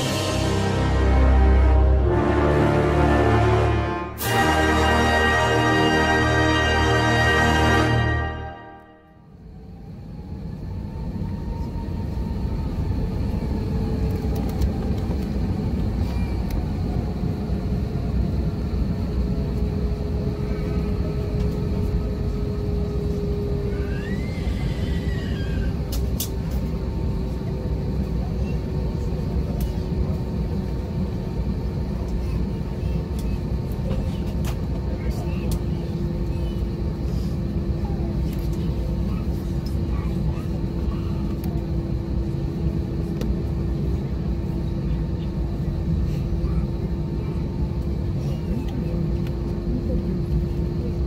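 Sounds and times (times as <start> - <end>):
jet engines rumbling: 0.0 - 51.0.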